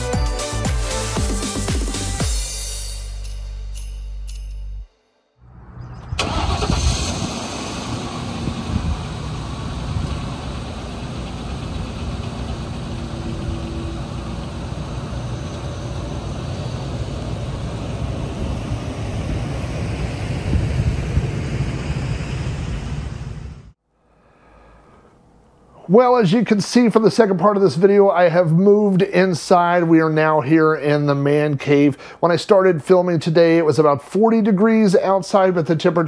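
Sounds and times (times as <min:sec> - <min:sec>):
van engine starting and running: 0:05.5 - 0:23.8
wind buffeting microphone: 0:05.9 - 0:13.9, 0:16.4 - 0:23.1.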